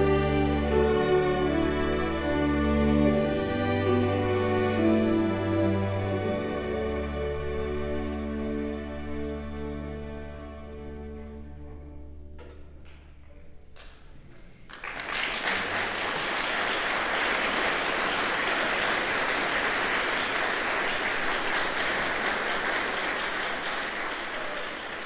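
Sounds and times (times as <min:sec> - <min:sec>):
audience applause: 0:14.7 - 0:25.0.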